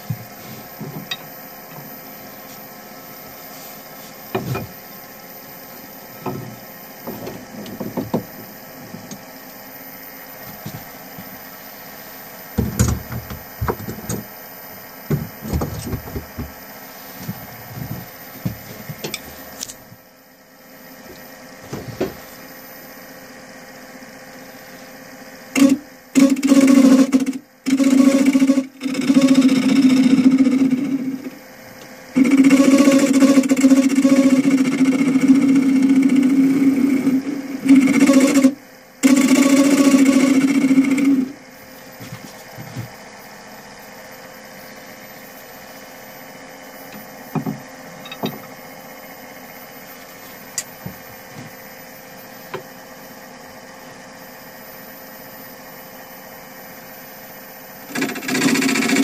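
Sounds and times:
lathe tool cutting wood: 32.2s - 41.3s.

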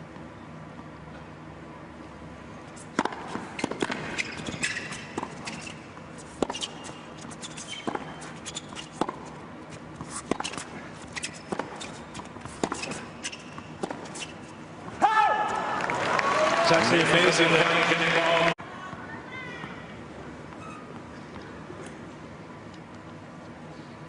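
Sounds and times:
shoes squeaking on court: 2.5s - 14.8s, 20.4s - 22.0s
racket hitting tennis ball: 2.8s - 14.5s.

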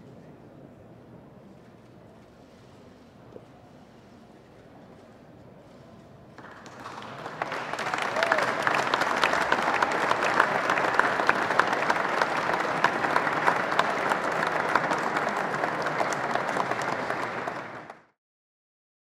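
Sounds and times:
crowd applauding: 6.4s - 18.2s.

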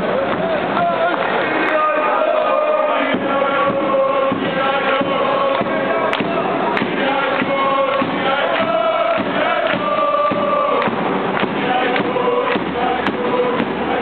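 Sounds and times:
crowd singing a chant: 0.0s - 14.0s
hand-clapping: 1.1s - 1.9s, 5.4s - 13.9s.

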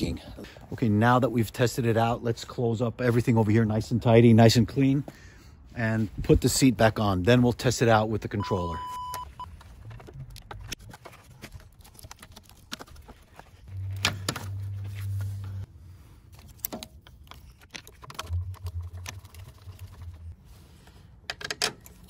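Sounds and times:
steady low hum: 13.7s - 16.3s.

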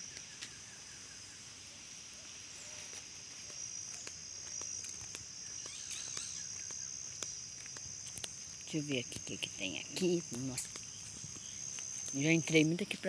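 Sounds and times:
insect chorus: 0.0s - 13.0s
footsteps on dirt road: 2.6s - 13.0s.

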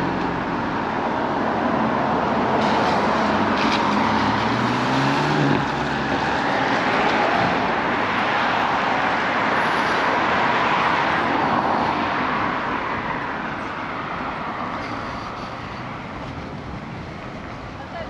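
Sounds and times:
car driving past: 2.6s - 12.6s.

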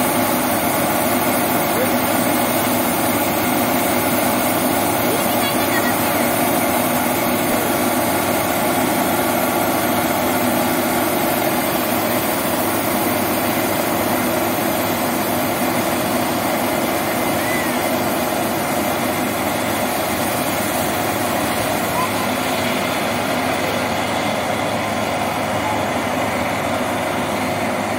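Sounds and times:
auger discharging grain: 0.0s - 27.9s
combine harvester droning: 0.0s - 27.9s.

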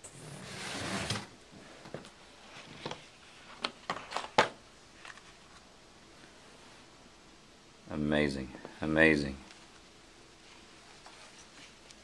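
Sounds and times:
soft rustling: 9.4s - 12.0s.

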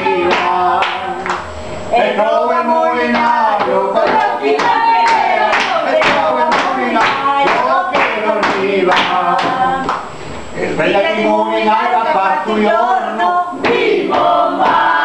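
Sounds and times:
people singing in chorus: 0.0s - 15.0s
hands clapping in time: 0.3s - 1.5s.

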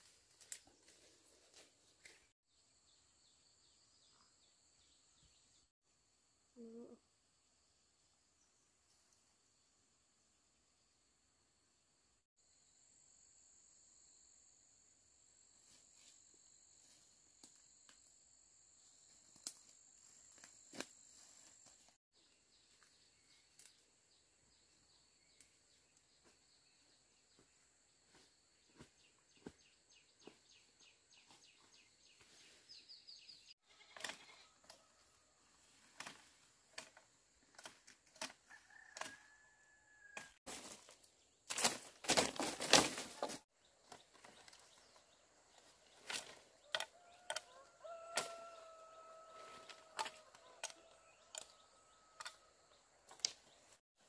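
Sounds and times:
leaves and twigs rustling: 0.0s - 2.3s, 40.2s - 50.6s
leafy branches rustling loudly: 40.5s - 43.5s.

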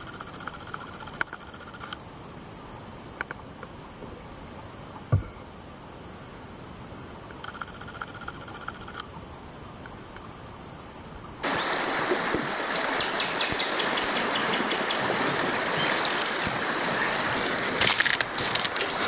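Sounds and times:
faint clicking: 0.0s - 2.0s, 3.2s - 3.8s, 7.2s - 9.2s, 9.8s - 10.3s
river flowing over stones: 11.4s - 19.0s.

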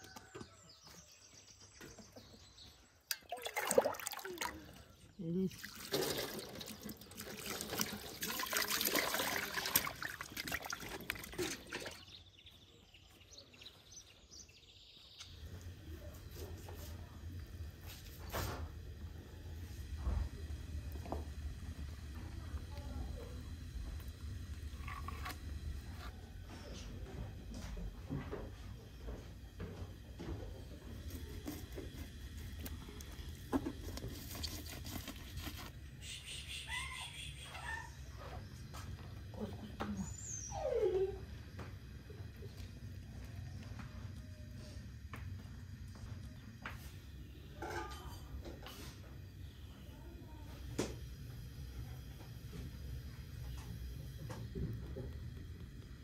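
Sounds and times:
water splashing and trickling: 3.1s - 12.2s.

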